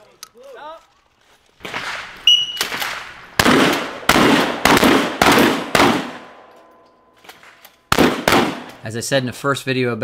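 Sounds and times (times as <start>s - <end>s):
shotgun fire: 1.6s - 6.4s, 7.9s - 8.8s.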